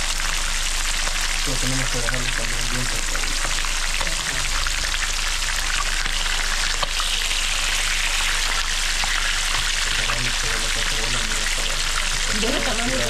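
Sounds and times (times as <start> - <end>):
fish sizzling in hot oil: 0.0 - 1.4, 3.4 - 9.8.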